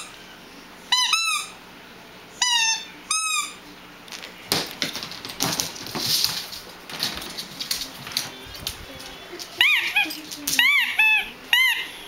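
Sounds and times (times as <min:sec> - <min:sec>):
squeaky ball squeaks: 0:00.9 - 0:01.6, 0:09.6 - 0:12.0
dog claws clattering on hardwood: 0:04.5 - 0:08.8.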